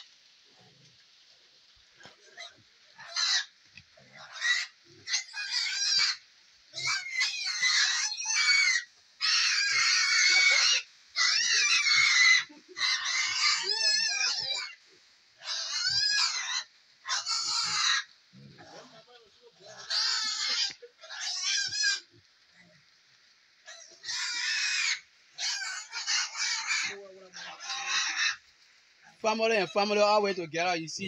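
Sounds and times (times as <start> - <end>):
piglets squealing: 2.0 - 14.8, 15.4 - 19.0, 19.6 - 22.1, 23.7 - 28.4.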